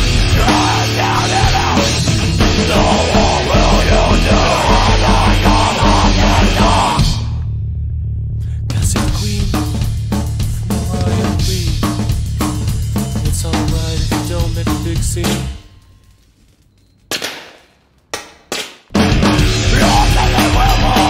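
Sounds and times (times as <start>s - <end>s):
metalcore band playing riff: 0.0s - 7.4s, 8.8s - 15.7s, 18.9s - 21.0s.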